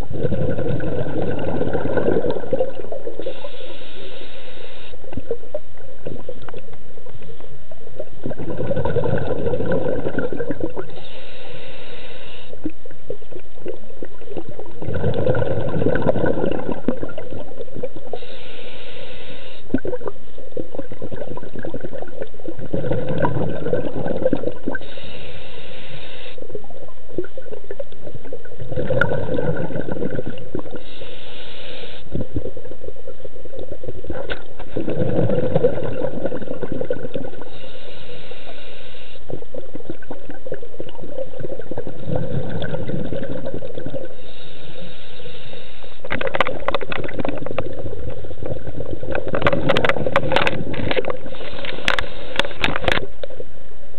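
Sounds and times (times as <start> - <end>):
exhaled bubbles rushing: 0.0 - 3.4, 7.9 - 11.0, 12.6 - 18.2, 19.7 - 24.9, 26.5 - 30.9, 32.1 - 37.6, 39.3 - 44.2, 46.0 - 53.2
regulator hiss: 3.0 - 5.2, 10.8 - 12.7, 18.0 - 19.8, 24.6 - 26.6, 30.7 - 32.4, 37.3 - 39.7, 43.9 - 46.1, 51.2 - 52.9.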